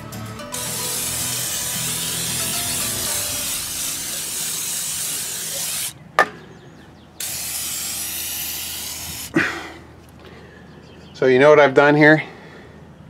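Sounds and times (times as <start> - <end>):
aerosol can spraying: 0.5 - 6.0, 7.2 - 9.4.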